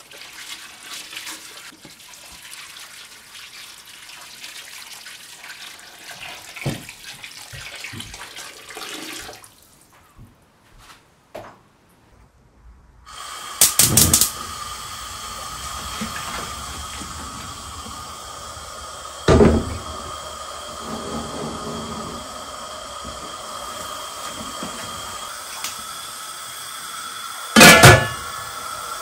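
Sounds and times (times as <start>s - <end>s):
gas flame hissing: 13.1s - 29.0s
pot clanking on grate: 13.6s - 14.4s, 27.6s - 28.4s
stove igniter clicks: 13.6s - 14.8s.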